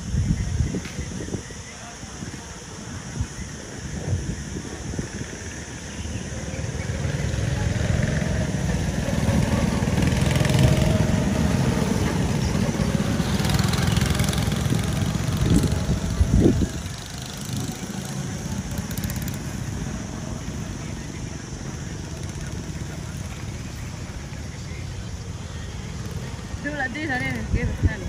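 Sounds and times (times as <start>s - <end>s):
go-kart engines running: 0.0s - 28.0s.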